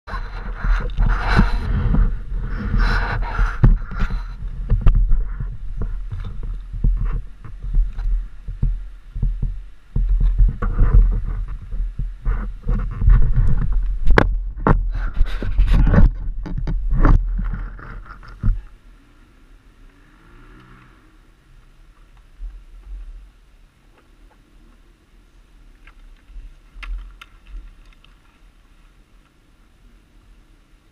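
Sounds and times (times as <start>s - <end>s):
camera rubbing against clothing: 0.1s - 18.7s
low rumble: 0.1s - 27.8s
sharp knocks and clunks: 0.6s - 18.7s.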